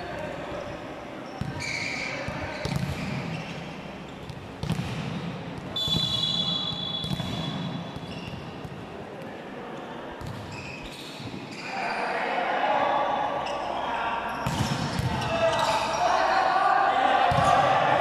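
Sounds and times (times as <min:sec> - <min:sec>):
basketball bouncing on court: 0:04.2 - 0:06.1, 0:14.4 - 0:15.2.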